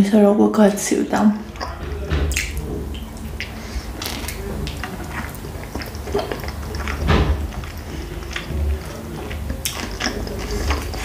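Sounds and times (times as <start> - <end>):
person chewing and sucking: 1.4 - 11.0
wet mouth clicks and smacks: 1.6 - 7.0.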